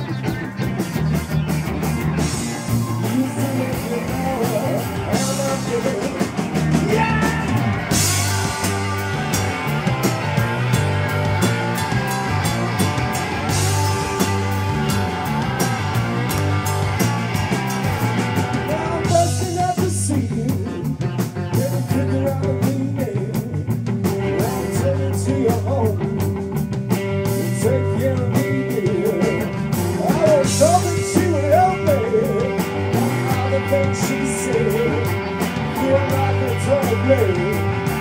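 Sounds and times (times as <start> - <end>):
bass guitar: 0.0 - 38.0
drum kit cymbal beat: 0.0 - 38.0
electric guitar lead lines: 0.0 - 38.0.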